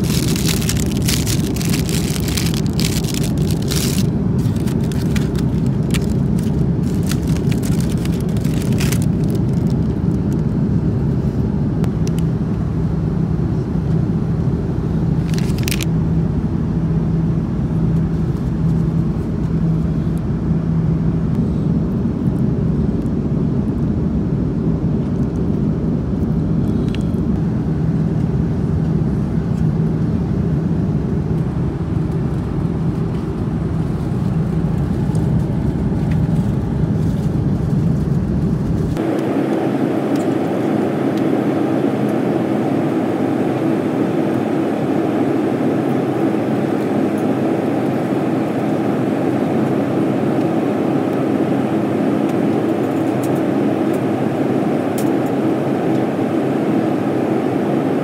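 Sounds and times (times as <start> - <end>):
airplane cabin engine rush: 0.0 - 58.0.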